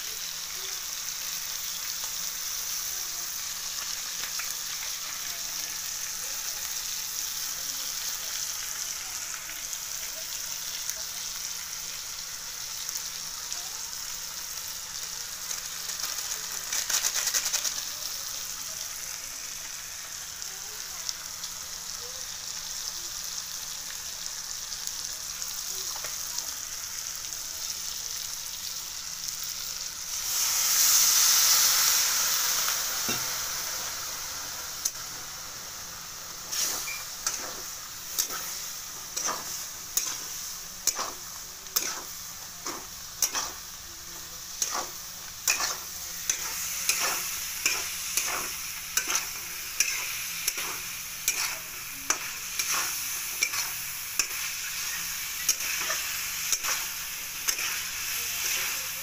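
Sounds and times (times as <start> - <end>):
food sizzling in a pan: 0.0 - 59.0
metal spatula scraping a pan: 41.8 - 43.6, 44.6 - 58.8.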